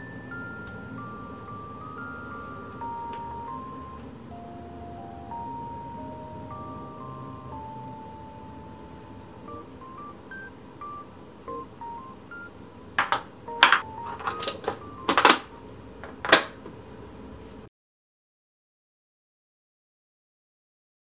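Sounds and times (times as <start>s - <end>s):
soft beeping background music: 0.0s - 16.1s
plastic latches clicking shut: 13.0s - 15.4s, 16.0s - 16.6s.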